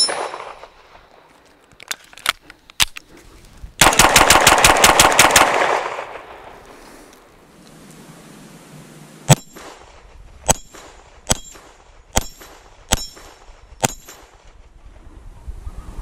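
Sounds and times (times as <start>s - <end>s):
pistol shots: 3.8s - 6.5s, 9.3s - 14.4s.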